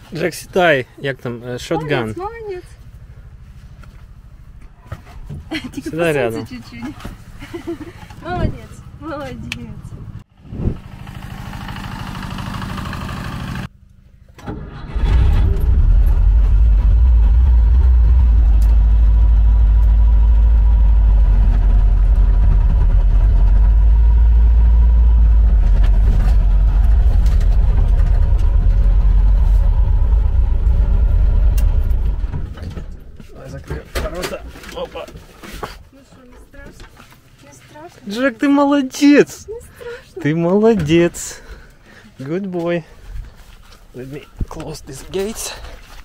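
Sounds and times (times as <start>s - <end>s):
jeep engine low rumble: 0.0s - 37.3s
small tractor engine chugging: 10.9s - 13.7s.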